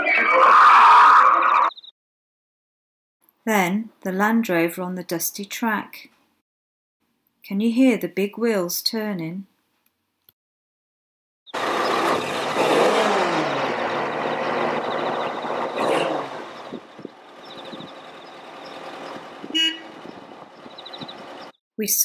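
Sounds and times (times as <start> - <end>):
vehicle engine and tyre noise: 11.5 - 21.6.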